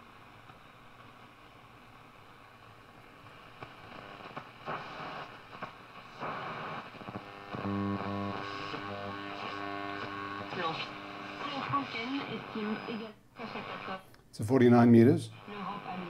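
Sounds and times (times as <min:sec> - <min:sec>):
radio static and hiss: 0:00.0 - 0:16.0
bursts of radio signals: 0:04.2 - 0:14.0
steady pitched radio tone: 0:06.2 - 0:14.0, 0:15.3 - 0:16.0.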